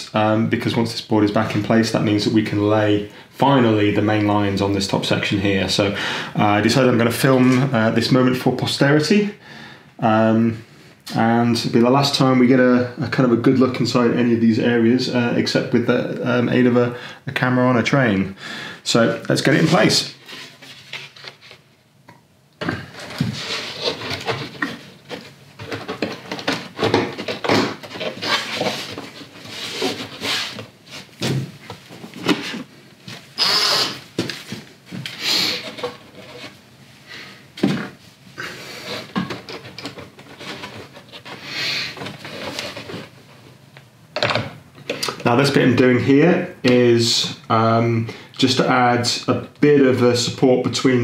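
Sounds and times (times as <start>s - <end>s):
wood scraping and knocking on wood: 22.6s - 33.2s.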